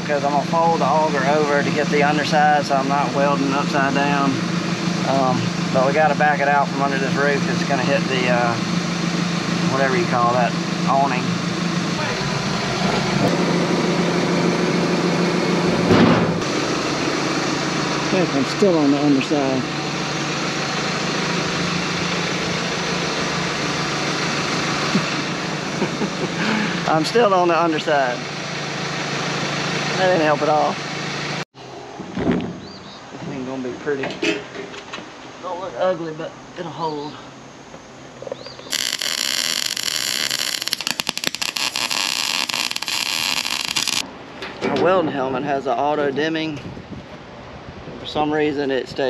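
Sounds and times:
tractor engine running: 0:00.0 - 0:31.4
sharp welding pops: 0:38.7 - 0:44.0
welder arc hissing and crackling: 0:38.7 - 0:44.0.

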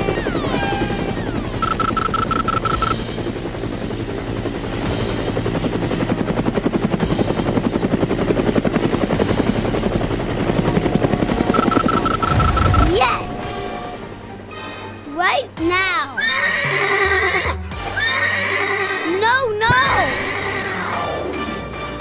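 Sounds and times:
helicopter rotor chopping: 0:00.0 - 0:16.4.

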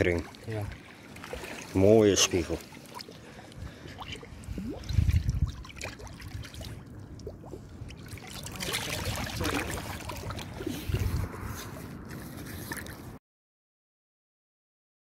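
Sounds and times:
water sloshing and splashing: 0:00.0 - 0:13.2.

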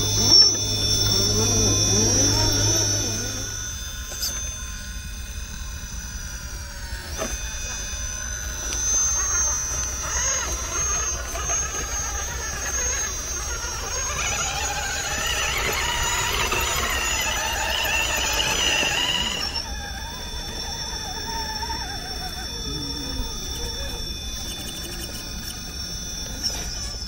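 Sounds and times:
electric motor whining: 0:00.0 - 0:27.0.

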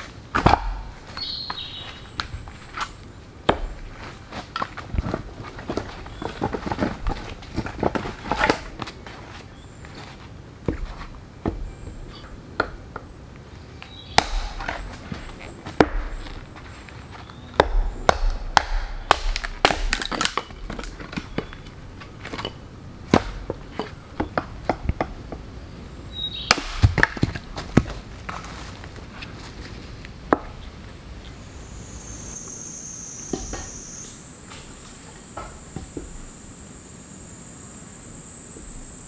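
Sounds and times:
axe chopping firewood: 0:00.0 - 0:01.6, 0:02.2 - 0:08.9, 0:14.1 - 0:16.4, 0:17.5 - 0:25.4, 0:26.4 - 0:28.0.

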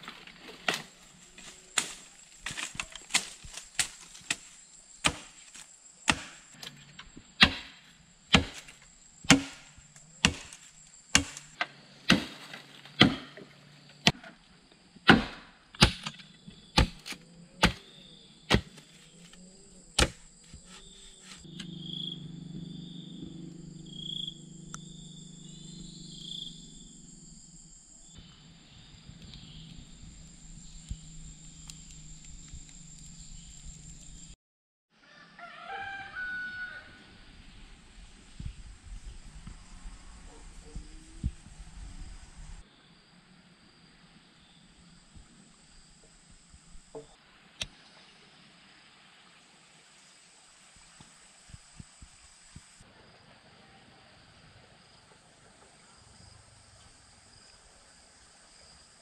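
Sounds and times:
insects trilling: 0:00.0 - 0:34.4, 0:35.4 - 0:47.3, 0:49.9 - 0:59.0
blade chopping bamboo: 0:00.5 - 0:06.8, 0:07.4 - 0:14.3, 0:15.1 - 0:16.2, 0:16.8 - 0:17.9, 0:18.5 - 0:19.4, 0:20.0 - 0:21.6.

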